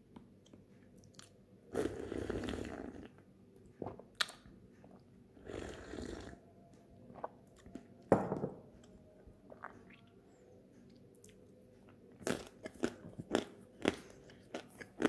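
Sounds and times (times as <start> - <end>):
glass knocking on wooden table: 8.1 - 8.6.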